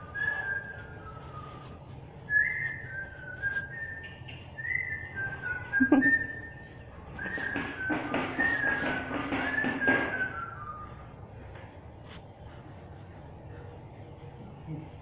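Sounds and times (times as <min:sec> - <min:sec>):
person whistling a tune: 0:07.2 - 0:11.1.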